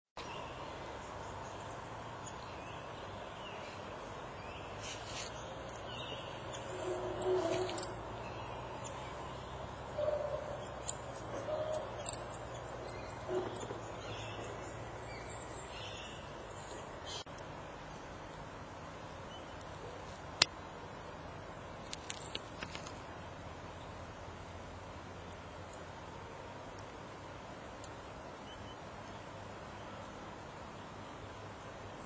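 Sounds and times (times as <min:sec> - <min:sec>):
low-pitched bird calls: 0:06.0 - 0:14.9.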